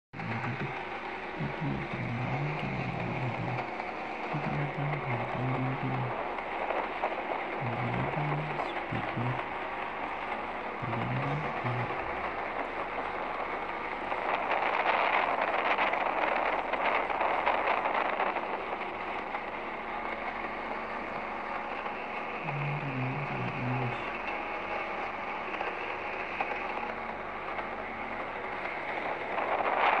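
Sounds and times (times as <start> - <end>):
low engine hum: 0.2 - 30.0.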